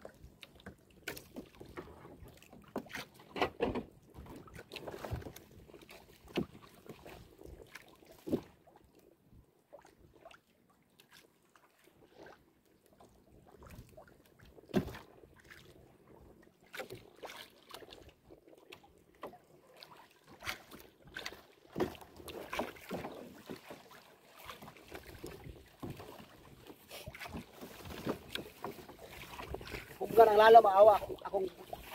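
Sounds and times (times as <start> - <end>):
sea splashing against boat: 0.0 - 8.7, 11.0 - 31.9
knocks on wooden hull: 2.8 - 4.4.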